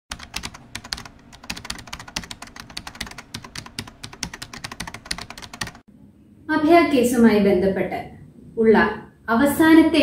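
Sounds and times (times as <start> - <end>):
rapid keyboard typing: 0.1 - 5.9.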